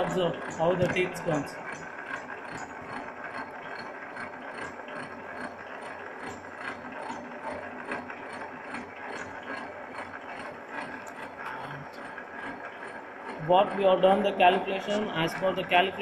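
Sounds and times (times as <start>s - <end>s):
milling machine rattling clatter: 0.0s - 16.0s.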